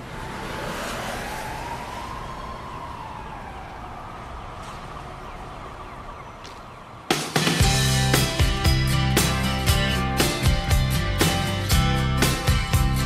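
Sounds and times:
siren wailing: 0:00.0 - 0:07.2.

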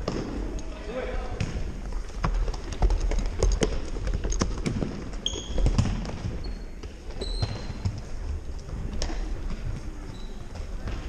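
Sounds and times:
soccer ball being kicked: 0:01.4 - 0:02.6, 0:04.6 - 0:08.0.

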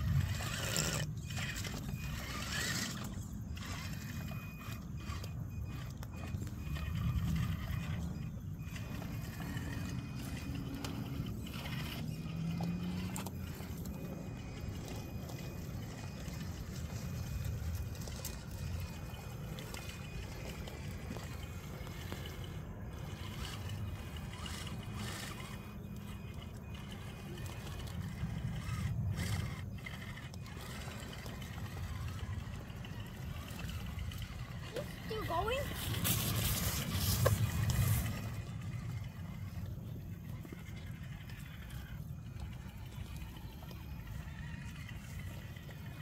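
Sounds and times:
wheels knocking on rocks: 0:00.0 - 0:46.0
toy truck splashing through water: 0:08.7 - 0:39.6.

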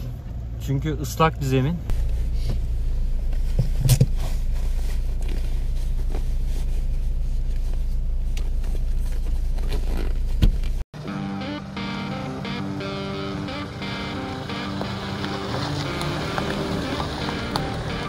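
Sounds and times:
vehicle engine drone: 0:11.0 - 0:18.0.

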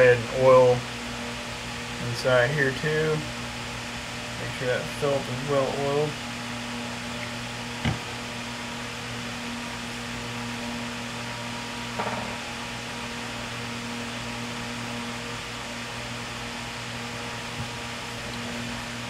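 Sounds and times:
fan-like hum and hiss: 0:00.0 - 0:19.0
brief knock: 0:12.0 - 0:12.4.

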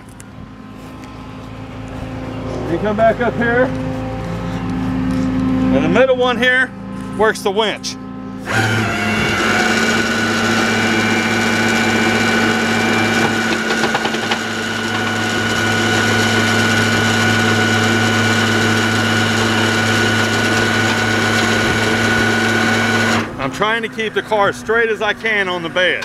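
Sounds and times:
truck engine hum: 0:00.0 - 0:26.0
hydraulic winch whine: 0:08.4 - 0:26.0.

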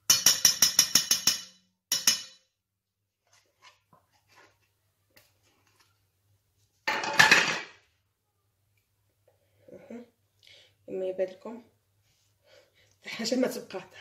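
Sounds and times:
metal spoon clinking on steel bowl: 0:00.1 - 0:02.5.

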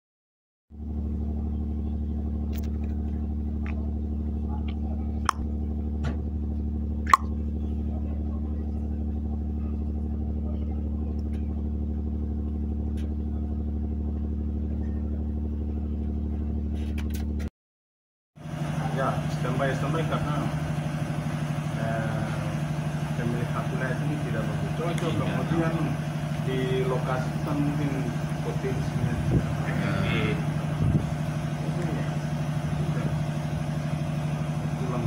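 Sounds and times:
ship engine droning: 0:18.4 - 0:35.0.

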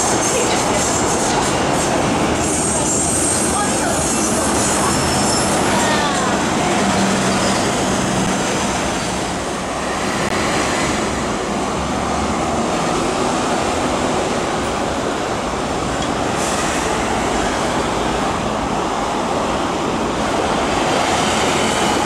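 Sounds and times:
train wheels rumbling on rails: 0:00.0 - 0:22.0
faint high wheel squeal: 0:04.2 - 0:05.9.

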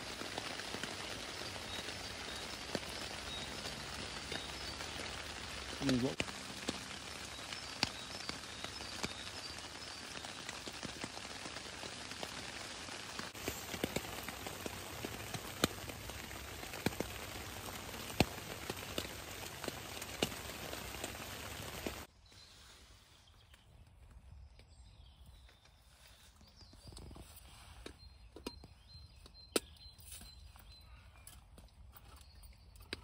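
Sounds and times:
heavy rain on a tarp: 0:00.0 - 0:22.1.

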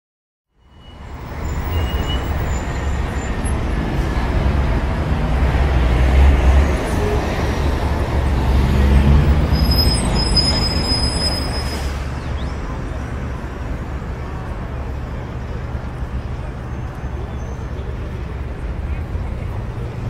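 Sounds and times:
low rumbling traffic: 0:00.6 - 0:20.0.

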